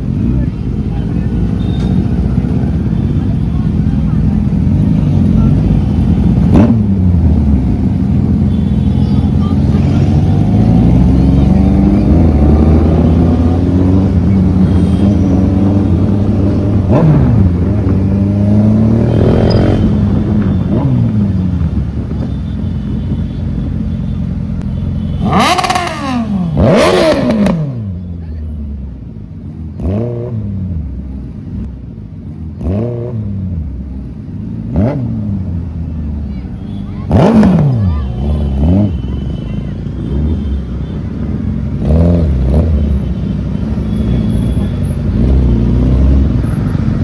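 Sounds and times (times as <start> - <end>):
motorcycle engines revving: 0.0 - 47.0.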